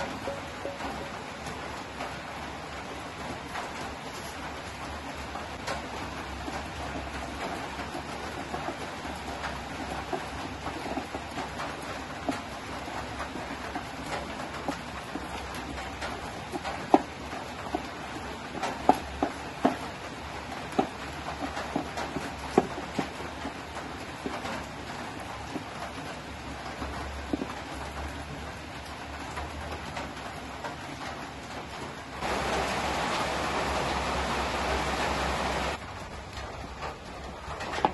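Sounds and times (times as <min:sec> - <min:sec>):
low steady hiss: 0:23.8 - 0:37.9
steady hiss: 0:32.2 - 0:35.8.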